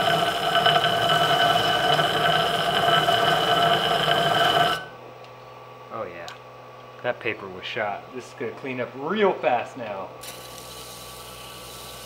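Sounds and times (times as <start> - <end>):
disc sander grinding knife blade: 0.0 - 4.9.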